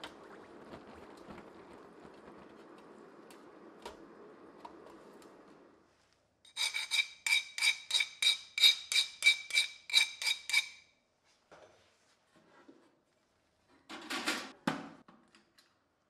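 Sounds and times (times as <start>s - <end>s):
steel file scraping a blade: 6.5s - 10.9s.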